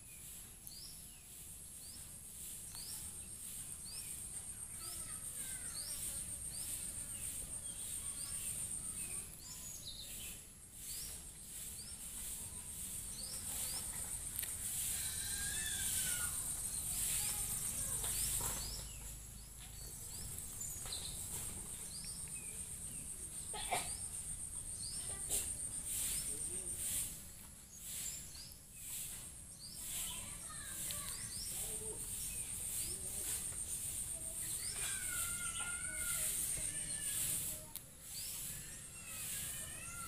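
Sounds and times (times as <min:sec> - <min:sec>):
high-pitched insect buzz: 0:34.9 - 0:37.5.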